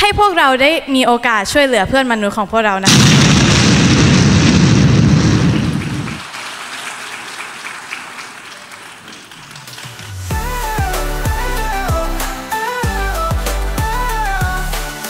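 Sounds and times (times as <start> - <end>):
audience applauding: 5.2 - 10.3
music: 9.6 - 15.0.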